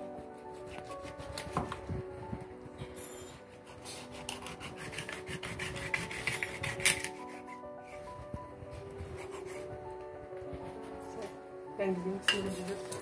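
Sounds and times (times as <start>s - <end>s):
knife sawing through meat: 0.1s - 1.6s, 3.3s - 8.1s, 8.8s - 9.8s.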